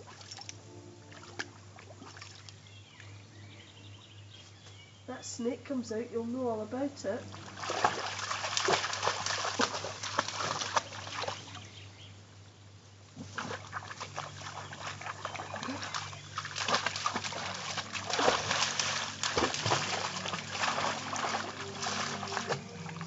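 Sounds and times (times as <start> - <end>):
dog splashing through pond: 0.0 - 3.2, 7.1 - 12.0, 13.1 - 23.0.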